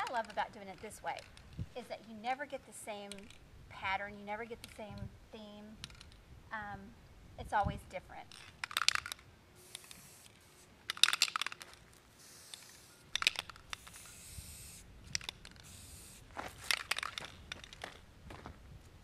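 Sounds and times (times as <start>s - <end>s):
spray can ball rattling: 8.4s - 18.0s
spray can hissing: 9.6s - 11.5s, 12.1s - 16.9s.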